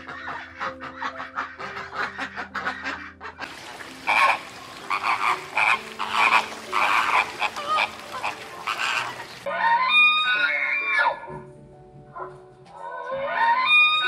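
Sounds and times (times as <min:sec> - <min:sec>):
chicken clucking: 0:00.1 - 0:09.5.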